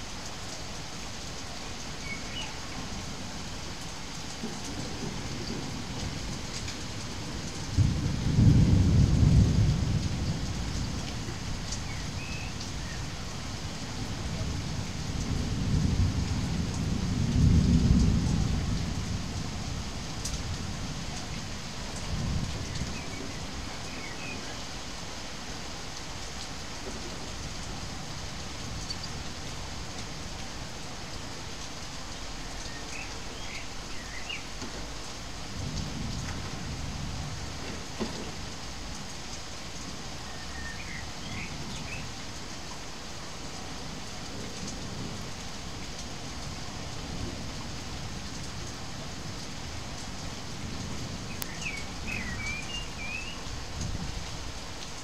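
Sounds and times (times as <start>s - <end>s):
steady rain: 0.0s - 55.0s
rolling thunder: 7.2s - 12.3s, 14.3s - 20.8s.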